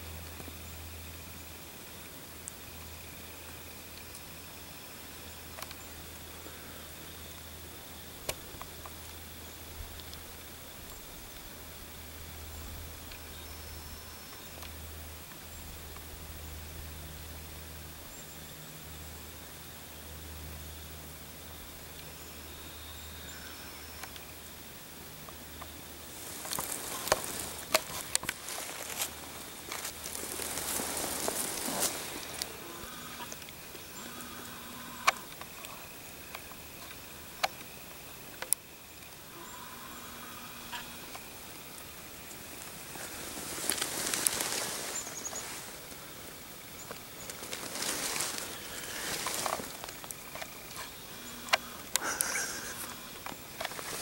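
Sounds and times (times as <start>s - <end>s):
faint steady hiss: 0.0s - 54.0s
close rustling: 26.1s - 33.3s, 42.5s - 46.1s, 46.8s - 54.0s.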